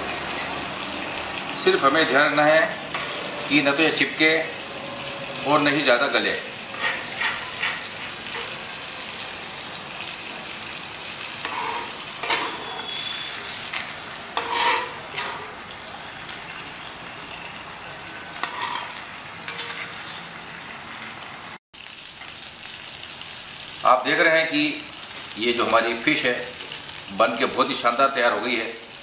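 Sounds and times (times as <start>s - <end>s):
fish sizzling in hot oil: 0.0s - 29.0s
metal spatula scraping pan: 2.9s - 3.6s, 6.6s - 8.7s, 11.4s - 15.6s, 18.4s - 20.2s.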